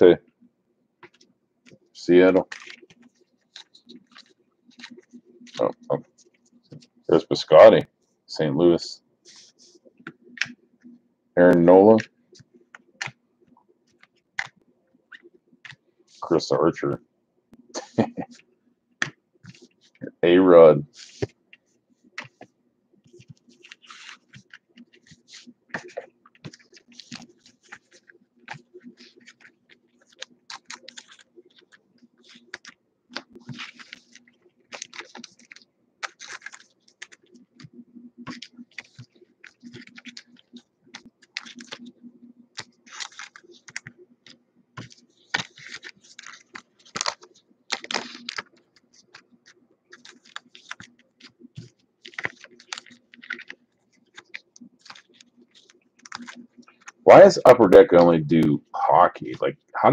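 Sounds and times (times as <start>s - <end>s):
faint low hum: 0.0s - 59.9s
cards slipped into plastic sleeves: 2.4s - 5.8s, 23.1s - 41.9s, 42.6s - 57.0s.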